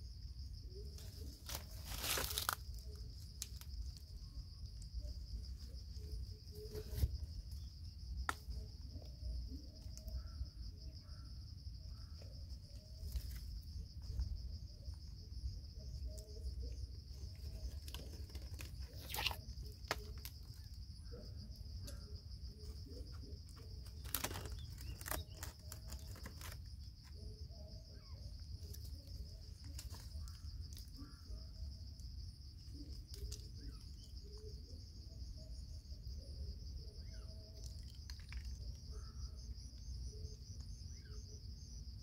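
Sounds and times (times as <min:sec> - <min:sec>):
insects trilling: 0:00.0 - 0:42.0
rustles and crackles: 0:00.8 - 0:07.7, 0:16.0 - 0:20.8, 0:22.6 - 0:27.4, 0:28.5 - 0:31.2.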